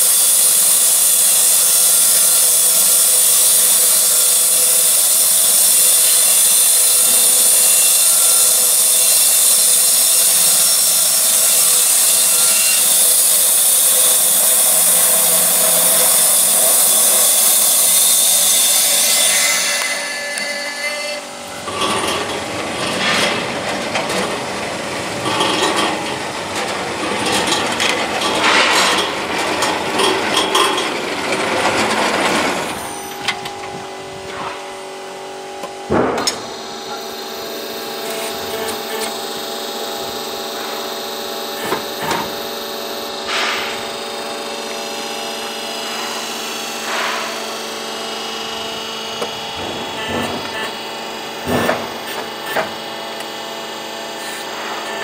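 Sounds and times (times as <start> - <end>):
band sawmill cutting timber: 0.0 - 55.0
machine humming: 10.1 - 30.0.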